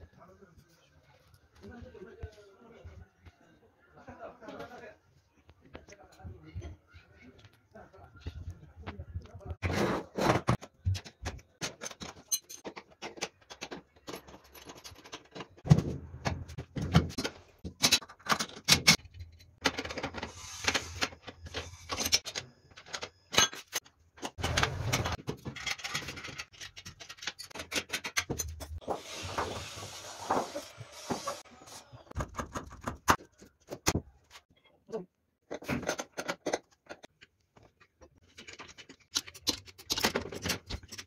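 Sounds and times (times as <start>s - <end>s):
spanners and bolts clinking: 10.4s - 15.7s, 16.5s - 28.9s, 37.8s - 41.0s.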